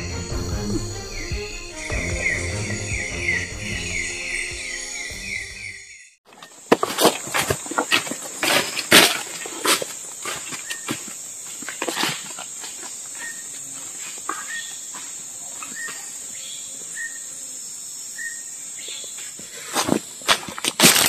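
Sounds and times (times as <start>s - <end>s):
high-pitched insect drone: 0.0s - 6.2s
footsteps on dry leaves: 6.3s - 15.9s, 19.6s - 21.0s.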